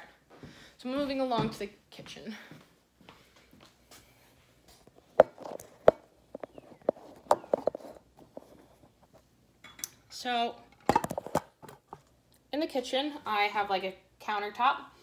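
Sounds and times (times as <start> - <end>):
footsteps: 0.2 - 9.3
handling noise: 4.7 - 9.3.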